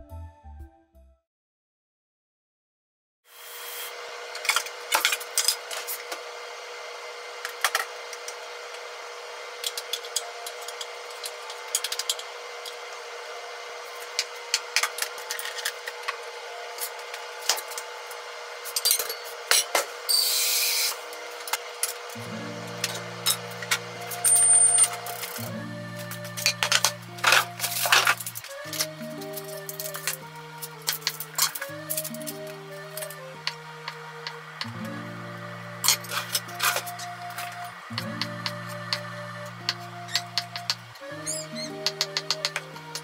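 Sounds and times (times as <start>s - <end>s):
steady hum: 3.9s - 43.0s
utensils and containers clicking: 9.6s - 12.8s, 26.2s - 34.4s, 35.8s - 39.0s, 39.7s - 43.0s
soft background music: 22.2s - 43.0s.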